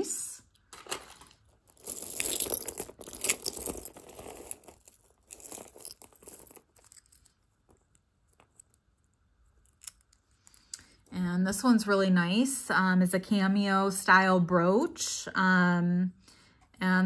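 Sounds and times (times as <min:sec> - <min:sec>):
jewelry rustling on a mat: 0:00.7 - 0:11.1.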